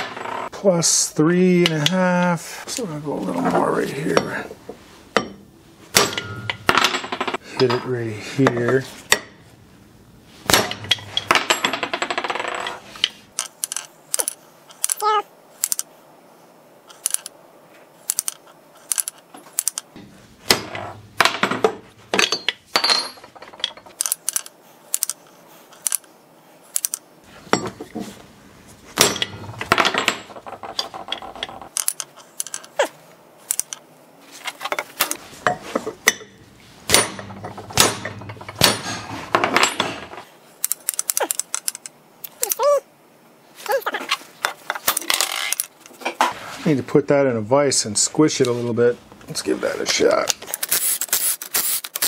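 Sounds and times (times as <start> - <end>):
low steady hum: 0.0 - 11.9
hammer striking metal crankshaft: 6.0 - 7.0, 36.0 - 40.0.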